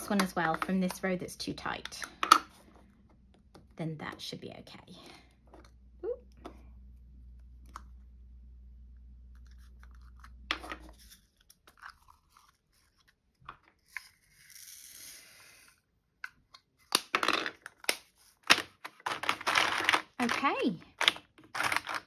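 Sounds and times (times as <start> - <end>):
resin beads pouring: 14.1 - 15.7.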